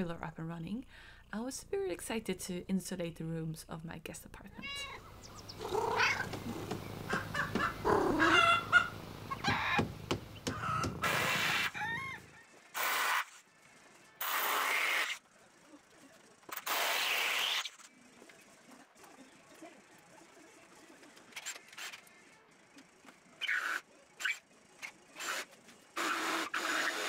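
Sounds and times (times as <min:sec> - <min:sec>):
cat meowing: 0:04.6 - 0:05.0, 0:05.6 - 0:06.7, 0:07.3 - 0:08.7
cat purring: 0:04.6 - 0:09.3
power drill bursts: 0:26.0 - 0:27.0.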